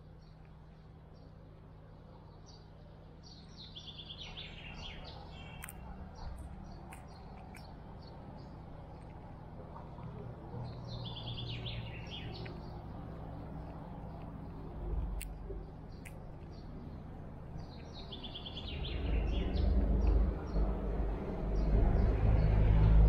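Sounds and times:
songbird chirping: 0.0s - 23.0s
sharp clicks: 5.5s - 7.8s, 13.6s - 16.7s.

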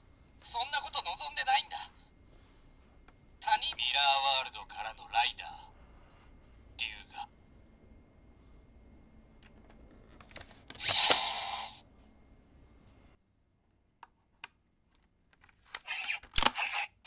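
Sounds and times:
plastic toy parts clicking: 14.9s - 16.7s.

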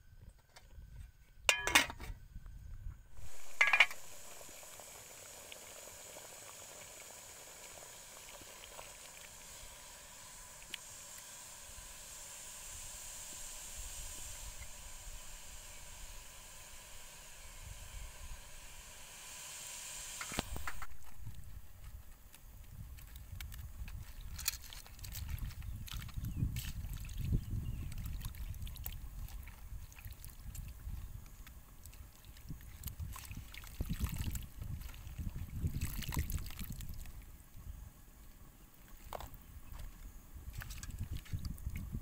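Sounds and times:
sharp metal clanks: 1.5s - 2.1s, 3.5s - 4.0s
gas stove burner hissing: 3.1s - 22.3s.

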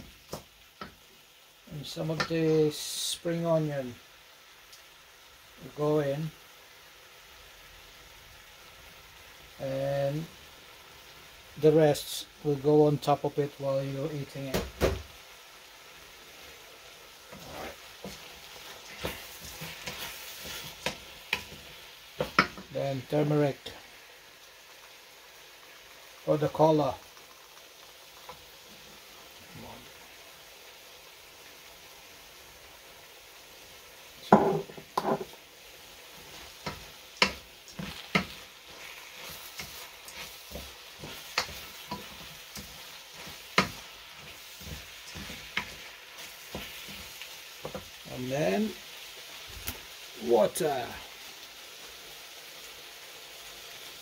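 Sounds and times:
food sizzling in a pan: 0.0s - 54.0s
wooden spoon scraping a metal pan: 17.3s - 21.6s
wooden spoon scraping and knocking: 34.2s - 35.4s.

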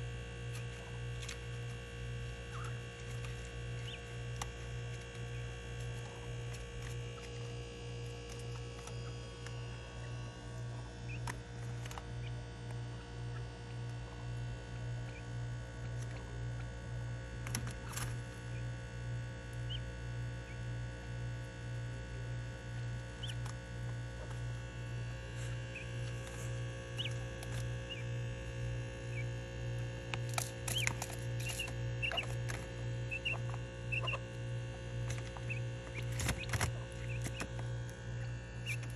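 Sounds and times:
low hum: 0.0s - 38.9s
quail chirping: 2.4s - 4.1s, 10.0s - 11.3s, 19.7s - 19.9s, 23.1s - 23.5s, 25.4s - 28.1s, 30.6s - 34.3s, 35.0s - 37.8s, 38.6s - 38.9s.

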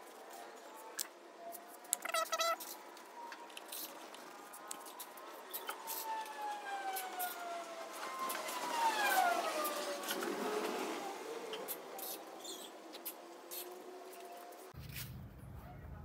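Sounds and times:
long wailing tones sliding down: 4.2s - 12.0s.

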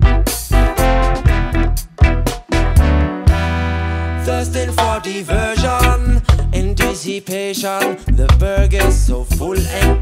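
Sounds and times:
instrumental music with steady beat: 0.0s - 10.0s.

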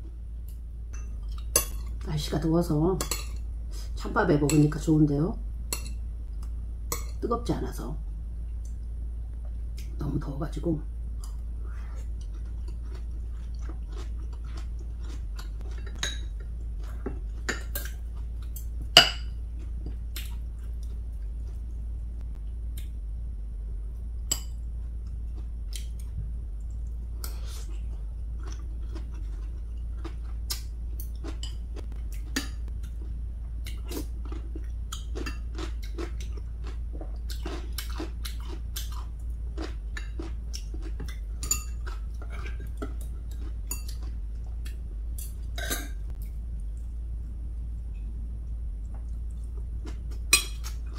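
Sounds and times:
steady low hum: 0.0s - 50.9s
chewing food: 11.2s - 18.7s, 24.8s - 46.9s.

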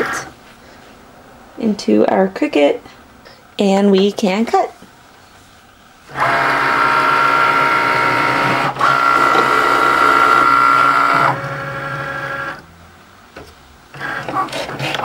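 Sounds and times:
cutting machine motors whirring: 6.1s - 12.6s, 13.9s - 15.0s.

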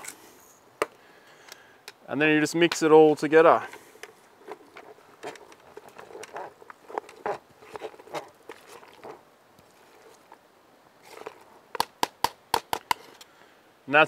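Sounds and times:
spoon scraping metal can: 4.4s - 10.4s, 11.0s - 11.5s.

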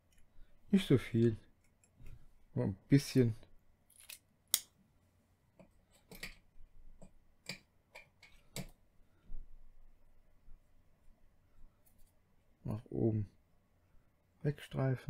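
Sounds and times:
small tools clicking and tapping: 5.6s - 8.8s.

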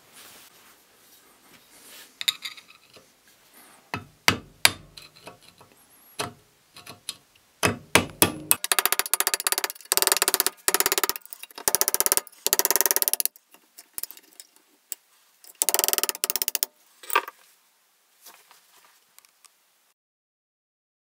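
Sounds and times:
metal rattling and clicking: 8.2s - 14.6s, 15.5s - 17.3s.

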